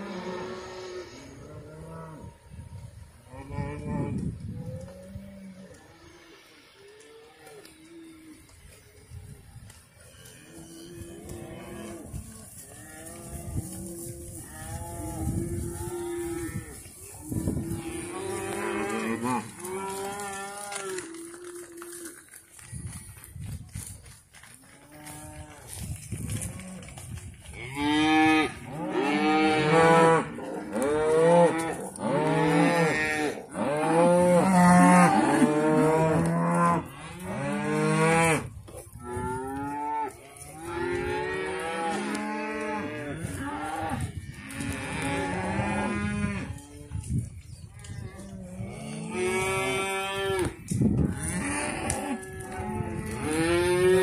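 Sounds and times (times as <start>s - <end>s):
cattle mooing: 0.0s - 2.3s.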